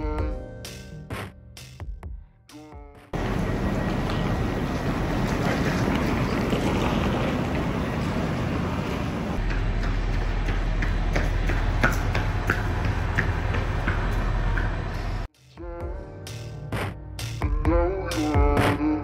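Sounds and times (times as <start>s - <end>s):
rumble of trains: 3.2s - 15.3s
footsteps on paving: 3.8s - 14.8s.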